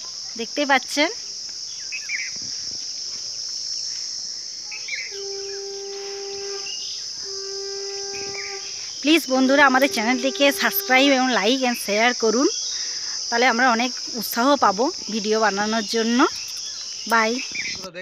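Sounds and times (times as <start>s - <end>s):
insect chorus drone: 0.0s - 18.0s
low pitched tone: 5.2s - 11.4s
bird chirps: 15.0s - 17.9s.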